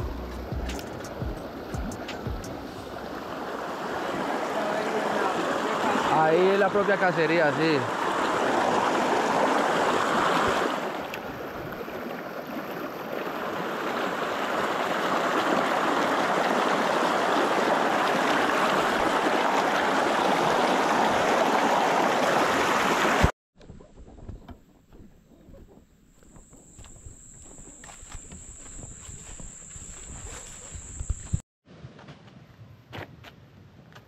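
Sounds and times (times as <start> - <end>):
faint outdoor sounds: 0.0 - 7.9
stream rushing over boulders: 0.0 - 23.3.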